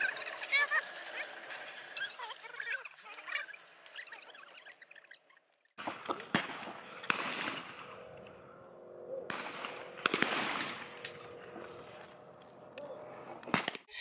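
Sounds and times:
shotgun shots: 0:05.8 - 0:07.9, 0:09.3 - 0:11.3.

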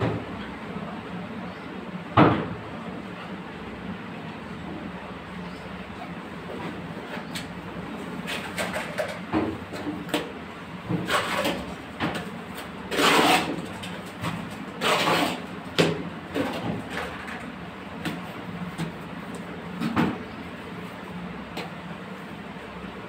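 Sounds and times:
trowel scraping wet mortar: 0:12.6 - 0:13.8, 0:14.8 - 0:15.5.

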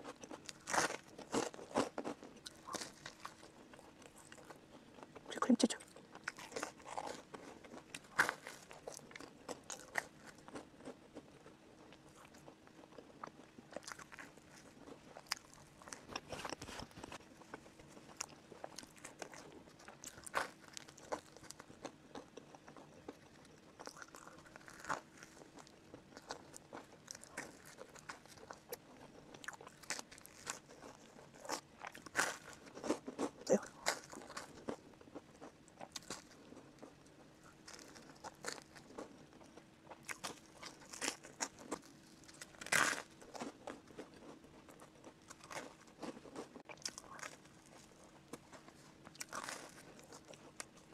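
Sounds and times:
bread chewing crunches: 0:00.0 - 0:50.9.

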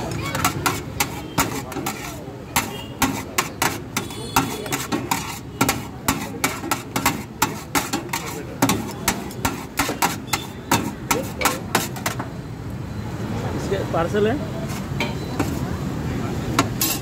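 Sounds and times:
metal spatula clacking on steel tray: 0:00.0 - 0:12.3.

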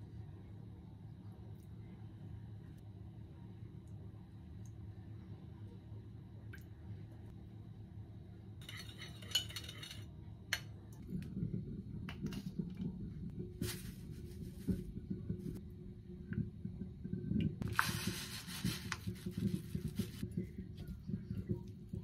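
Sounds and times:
spoon clinking in ceramic bowl: 0:08.6 - 0:10.1.

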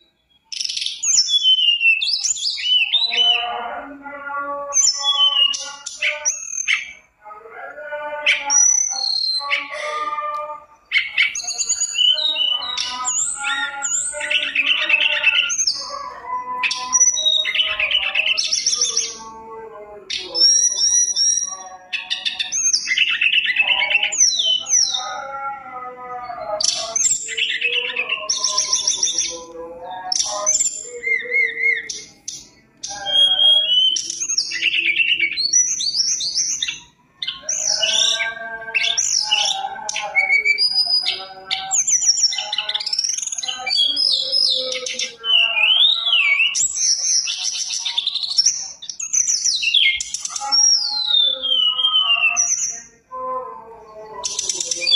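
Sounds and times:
bird singing whistles and trills: 0:00.0 - 0:03.5, 0:04.8 - 0:07.1, 0:08.3 - 0:10.0, 0:10.8 - 0:19.3, 0:20.1 - 0:25.1, 0:26.3 - 0:53.0, 0:53.8 - 0:54.9.

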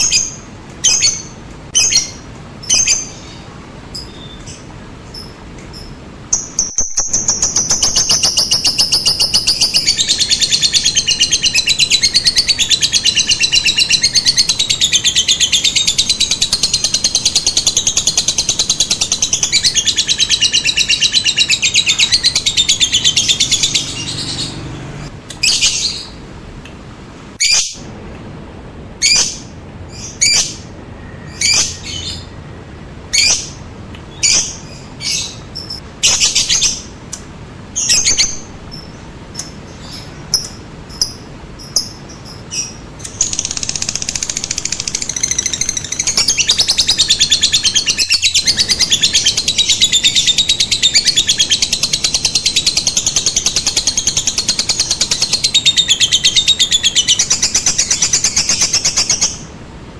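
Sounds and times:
lovebird chattering trill: 0:00.0 - 0:26.2, 0:37.8 - 0:59.5
lovebird sharp chirps: 0:00.0 - 0:26.2.

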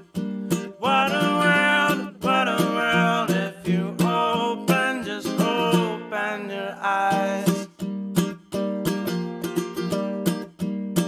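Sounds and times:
person singing: 0:00.0 - 0:07.9
strummed acoustic guitar: 0:00.0 - 0:11.0.

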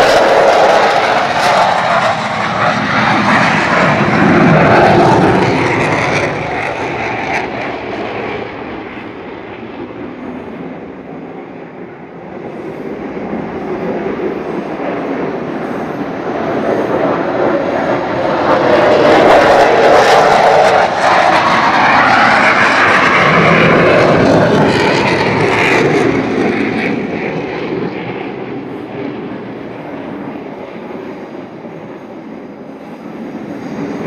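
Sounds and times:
fighter jet roar: 0:00.0 - 0:34.0.

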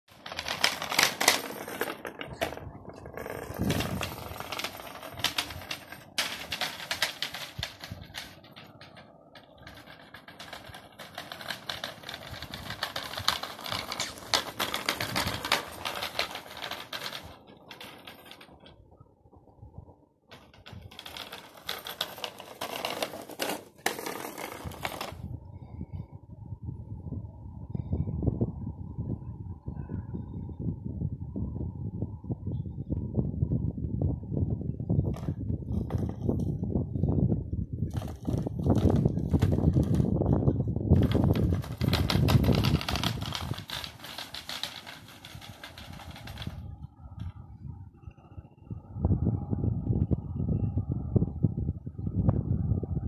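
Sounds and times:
wire cart rattling: 0:00.1 - 0:18.8, 0:37.9 - 0:46.8.

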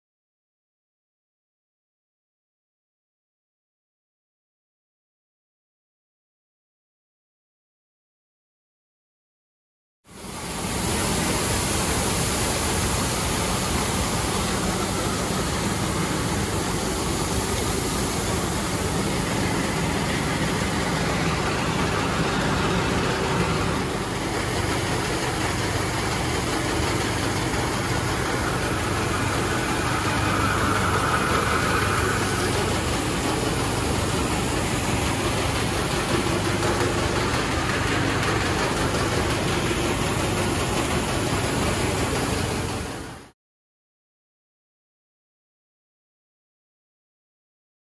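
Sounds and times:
farm machinery engine running: 0:10.1 - 0:43.3.

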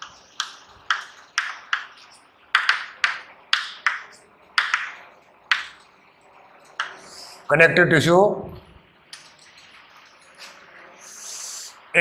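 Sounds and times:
chalk tapping and scratching on chalkboard: 0:00.0 - 0:05.9, 0:06.8 - 0:07.4.

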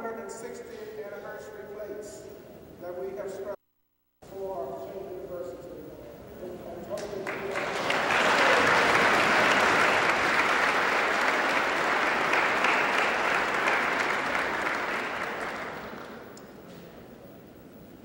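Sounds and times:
audience applauding: 0:07.0 - 0:16.4.

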